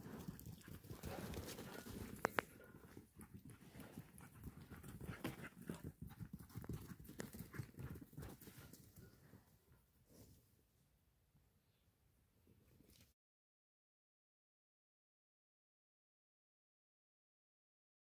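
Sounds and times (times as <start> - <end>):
puppies' paws on dry dirt: 0.0 - 10.2.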